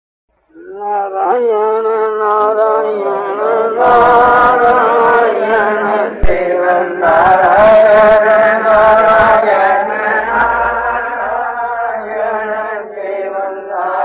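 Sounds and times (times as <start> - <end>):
man chanting: 0.5 - 14.0
sharp knock: 6.2 - 6.6.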